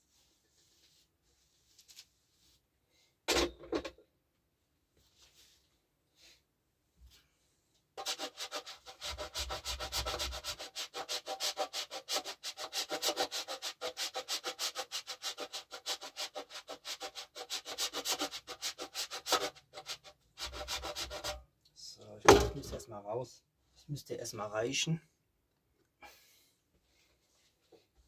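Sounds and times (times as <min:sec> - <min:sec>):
candle scraping on metal grater: 0:08.0 - 0:21.4.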